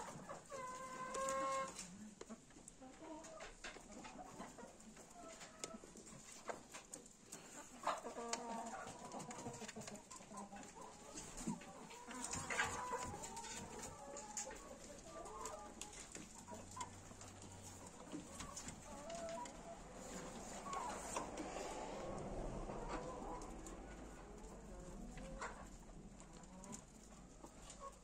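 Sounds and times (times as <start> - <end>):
chickens clucking quietly: 0.0 - 28.0
small clicks and rustles: 0.2 - 21.5.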